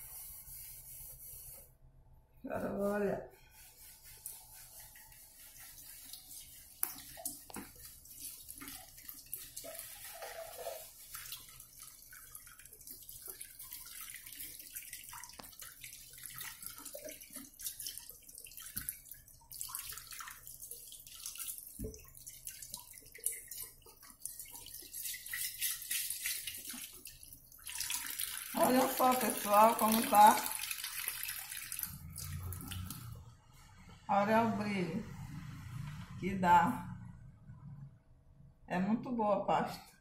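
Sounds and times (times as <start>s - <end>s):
tap water running: 3.5s - 33.2s.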